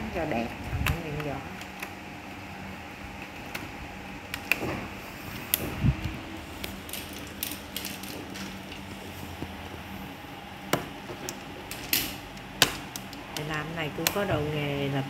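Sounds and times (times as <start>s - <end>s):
plastic strips clicking and crackling: 6.6s - 8.9s, 11.1s - 14.4s.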